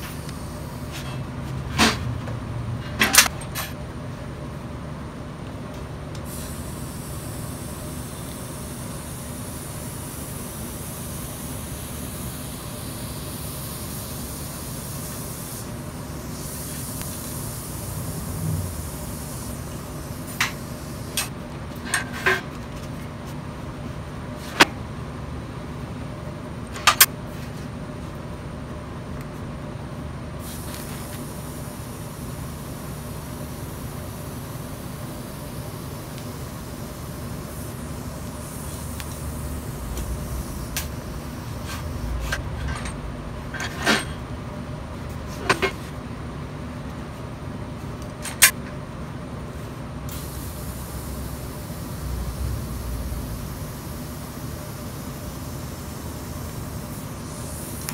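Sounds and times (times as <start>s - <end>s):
welding arc hiss: 0.0s - 1.2s, 6.2s - 22.4s, 30.4s - 45.8s, 50.1s - 57.9s
workshop hum: 0.0s - 57.9s
steel scraping clank: 39.7s - 44.4s.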